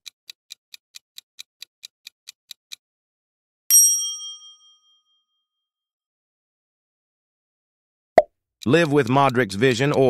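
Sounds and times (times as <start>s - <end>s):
bell-like ding chime: 3.7s - 5.4s
countdown timer ticks: 8.6s - 10.0s.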